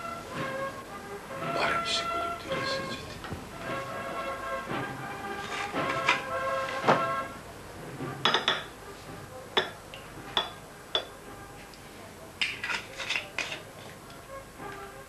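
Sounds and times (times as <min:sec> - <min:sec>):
dishes and cutlery clinking: 0:02.5 - 0:07.2, 0:08.1 - 0:08.8, 0:09.5 - 0:11.3, 0:12.4 - 0:14.8.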